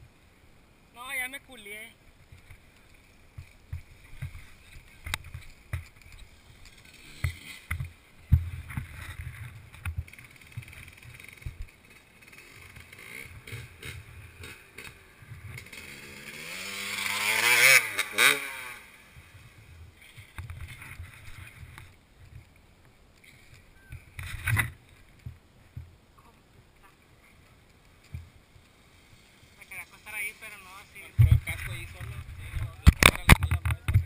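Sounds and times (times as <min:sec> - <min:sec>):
dirt bike engine revving: 0:06.7 - 0:07.9, 0:10.1 - 0:19.4.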